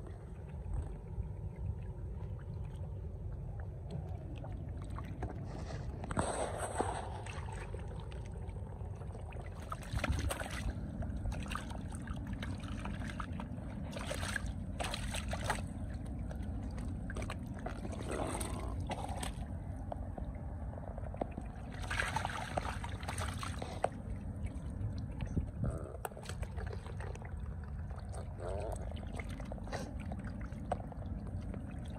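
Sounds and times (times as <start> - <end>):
low rumble: 0.0 - 31.9
muddy water splashing: 0.0 - 31.9.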